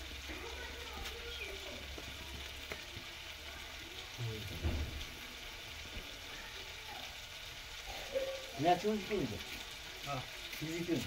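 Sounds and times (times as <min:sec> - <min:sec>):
wood fire crackling and sizzling: 0:00.0 - 0:11.0
low thump: 0:04.5 - 0:05.2.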